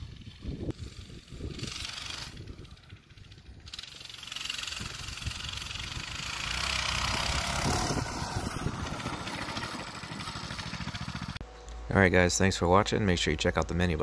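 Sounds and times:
minibike engine passing by: 0:00.0 - 0:11.4.

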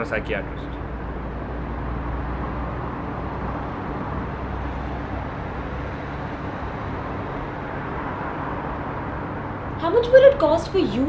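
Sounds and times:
distant traffic rush: 0:00.0 - 0:11.0.

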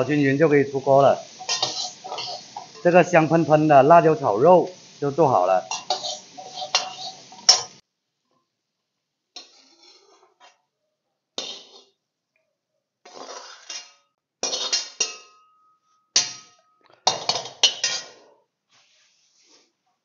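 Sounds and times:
spatula scraping a wok: 0:00.9 - 0:03.6, 0:05.6 - 0:07.8, 0:09.4 - 0:10.6, 0:11.4 - 0:12.0, 0:13.0 - 0:19.8.

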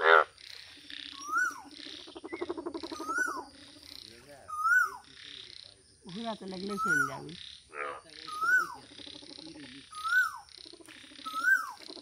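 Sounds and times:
frog call rising and falling: 0:00.0 - 0:03.8, 0:07.8 - 0:12.0
low pulsed frog croaking: 0:00.0 - 0:12.0.

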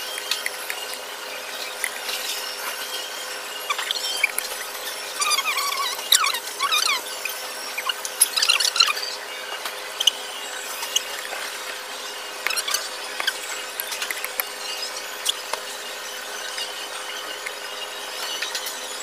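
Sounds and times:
steady background hum: 0:00.0 - 0:19.0
high squeaks: 0:03.5 - 0:09.2, 0:09.9 - 0:18.7.

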